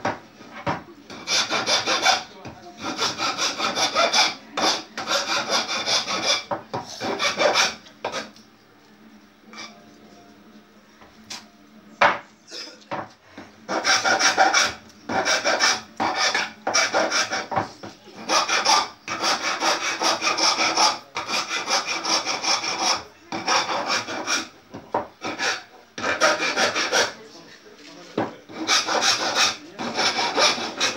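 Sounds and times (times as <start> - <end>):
hand tool scraping wood: 2.8 - 8.3, 13.7 - 17.5, 18.2 - 24.5, 25.2 - 27.2, 28.5 - 30.9.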